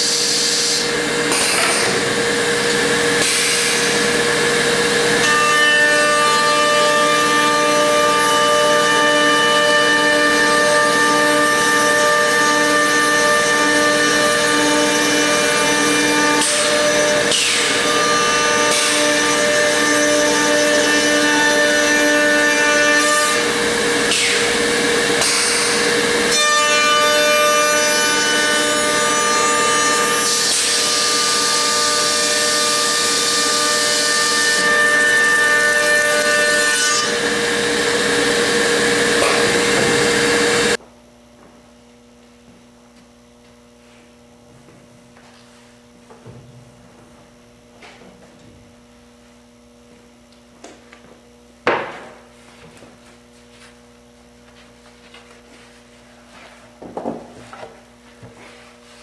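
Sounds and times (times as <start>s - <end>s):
router motors whining and cutting wood: 0.0s - 40.8s
wooden stringer thumping machine: 1.2s - 40.8s, 50.6s - 52.9s, 56.8s - 58.5s.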